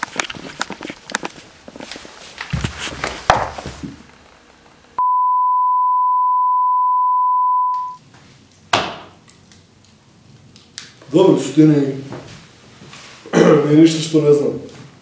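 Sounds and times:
steady test tone beep: 0:05.0 - 0:08.0.

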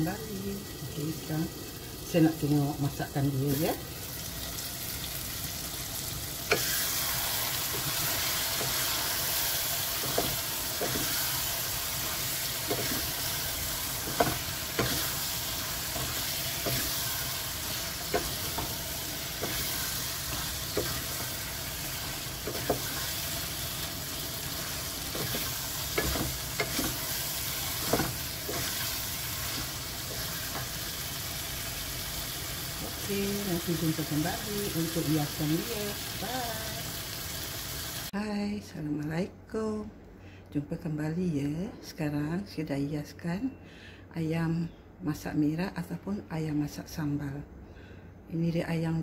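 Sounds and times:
sauce sizzling in a saucepan: 0:00.0 - 0:38.2
wooden spatula scraping a pan: 0:07.6 - 0:23.3, 0:24.6 - 0:30.8.

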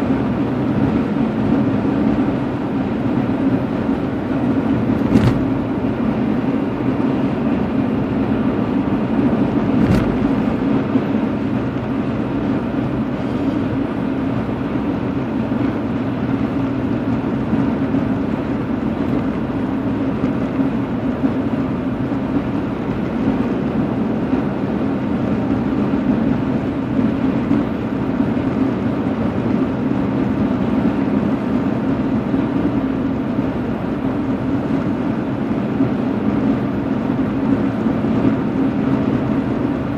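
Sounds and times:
road and engine noise in car: 0:00.0 - 0:39.9.

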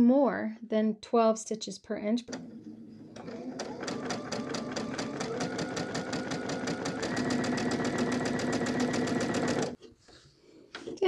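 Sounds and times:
sewing machine stitching: 0:02.3 - 0:09.8.

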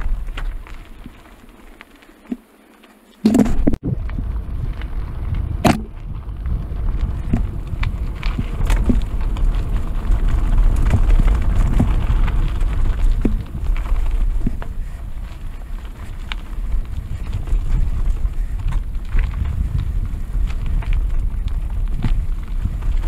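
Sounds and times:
bike rattles and clicks: 0:00.0 - 0:23.0
tyres rumbling over dirt: 0:00.0 - 0:23.0
wind on microphone: 0:03.3 - 0:23.0.

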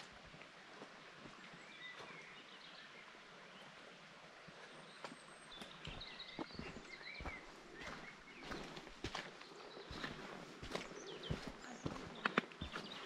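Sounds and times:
birds chirping: 0:04.5 - 0:13.0
footsteps on trail: 0:04.9 - 0:13.0.

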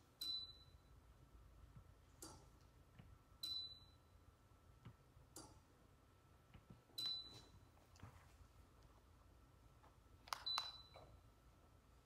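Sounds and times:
faint steady high tone: 0:00.0 - 0:01.1, 0:03.4 - 0:04.2.

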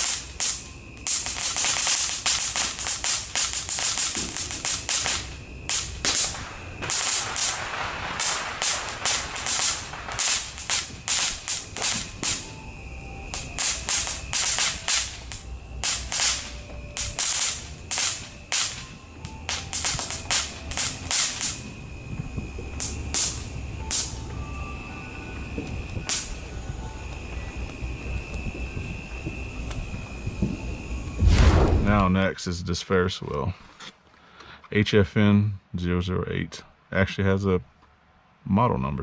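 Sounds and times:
firework rushing hiss: 0:00.0 - 0:18.9, 0:30.6 - 0:32.2
firework crackling pops: 0:00.0 - 0:24.2, 0:25.5 - 0:32.2.

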